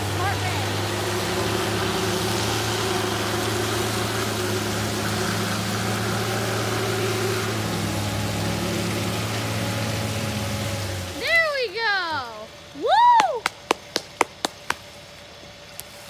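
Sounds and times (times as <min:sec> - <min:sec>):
electric winch motor drone: 0:00.0 - 0:11.3.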